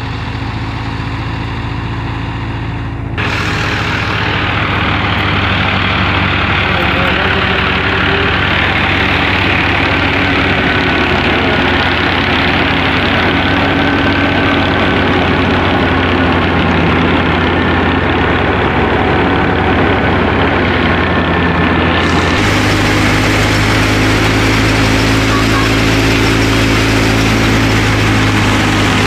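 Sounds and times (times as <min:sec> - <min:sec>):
thresher mechanical din: 0:00.0 - 0:29.0
tractor engine running: 0:00.0 - 0:29.0.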